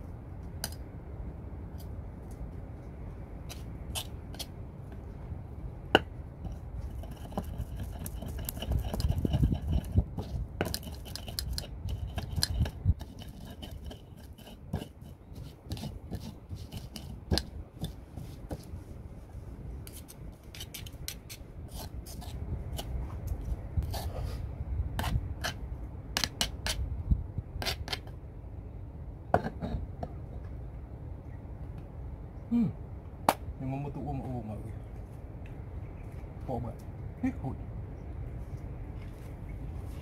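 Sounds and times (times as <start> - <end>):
pestle grinding in stone mortar: 6.0 - 18.7.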